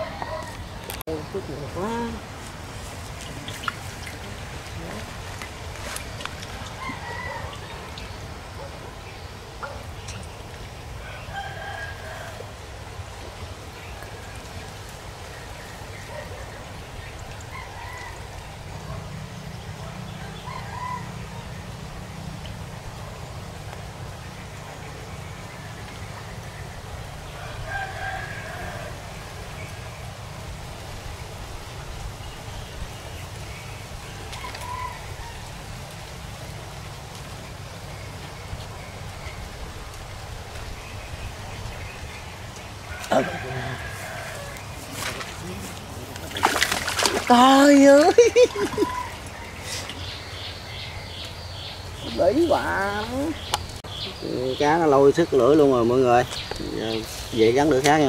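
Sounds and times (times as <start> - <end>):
rooster crowing: 0.0 - 0.7, 6.8 - 7.9, 11.0 - 12.6, 20.1 - 21.5, 27.4 - 29.3, 34.4 - 35.6, 42.9 - 44.8.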